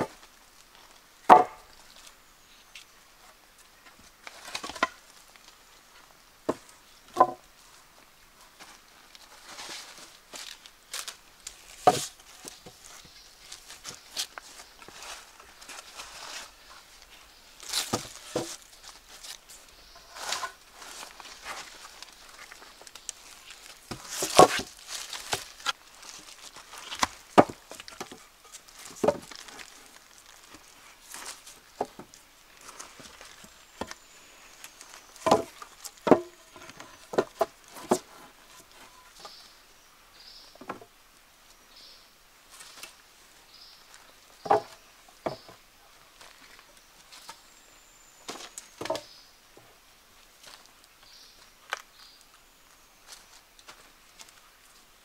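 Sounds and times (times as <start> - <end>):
rustling: 0.0 - 39.6
wood knocking and clattering: 1.3 - 1.6, 4.5 - 5.0, 6.5 - 7.4, 27.0 - 28.3, 28.9 - 29.6, 35.2 - 38.2, 44.4 - 45.6.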